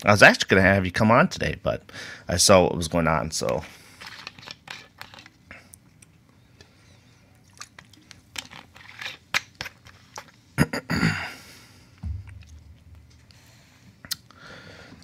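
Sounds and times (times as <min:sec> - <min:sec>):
clicks and crackles of handling: 0:03.4 - 0:06.1.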